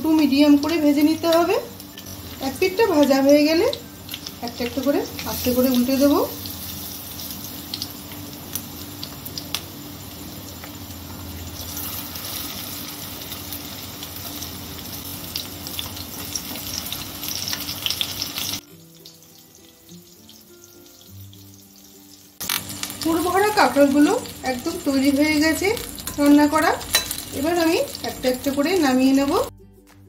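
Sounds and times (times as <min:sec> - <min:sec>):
food sizzling in hot oil: 0:00.0 - 0:29.5.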